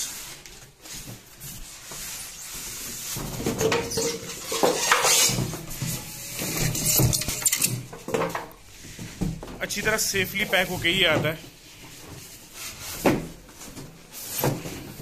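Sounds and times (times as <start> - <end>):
cardboard carton scraping and knocks: 11.0 - 15.0.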